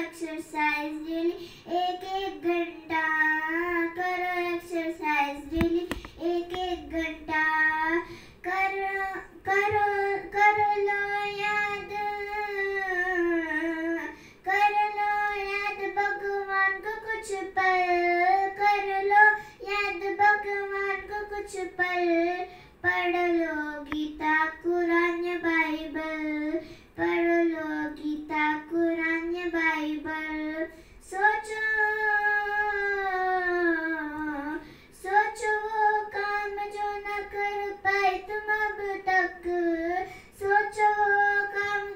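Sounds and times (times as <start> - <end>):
breaths: 1.3 - 1.7, 5.9 - 6.2, 8.0 - 8.4, 14.1 - 14.5, 19.3 - 19.6, 22.4 - 22.8, 26.5 - 27.0, 30.7 - 31.0, 34.6 - 35.0, 40.0 - 40.4.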